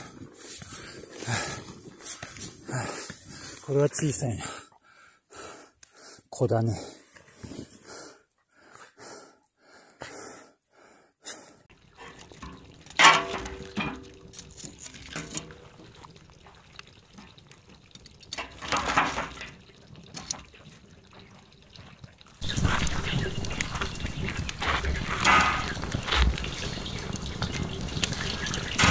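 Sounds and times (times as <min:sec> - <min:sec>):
wood fire crackling: 0:11.7 - 0:28.9
metal poker stirring logs: 0:11.8 - 0:28.9.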